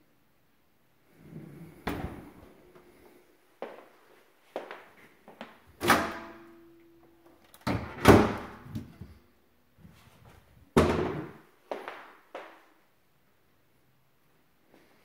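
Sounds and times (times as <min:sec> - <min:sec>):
kitchen doors banging shut: 0:01.8 - 0:02.4, 0:07.6 - 0:09.0, 0:10.7 - 0:11.4.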